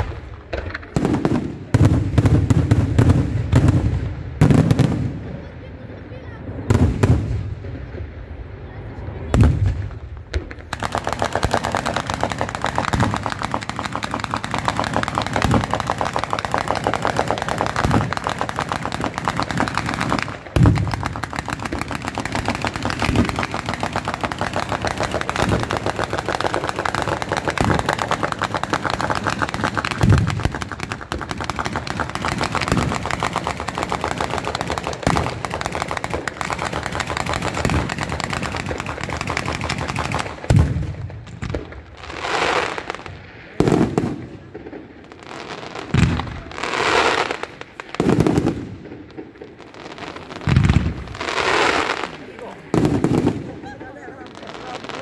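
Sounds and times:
rapid crackle of firecrackers: 0.0s - 55.0s
heavy firecracker bang: 9.3s - 41.7s, 47.9s - 54.1s.

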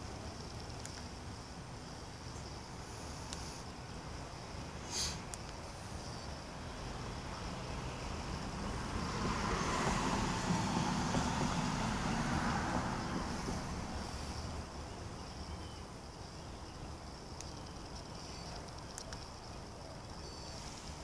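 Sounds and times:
high insect buzz: 0.0s - 19.5s
vehicle passing: 6.5s - 14.8s.

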